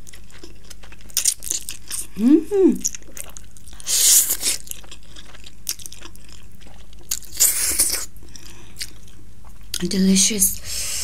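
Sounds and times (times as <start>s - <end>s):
chewing and mouth clicks: 0.0s - 2.2s, 2.8s - 9.9s
noodles slurping: 3.0s - 8.4s.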